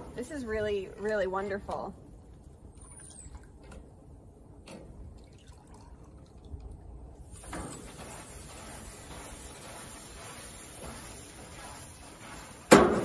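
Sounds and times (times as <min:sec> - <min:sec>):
wet pad sizzling on hot grill: 0:07.2 - 0:13.0.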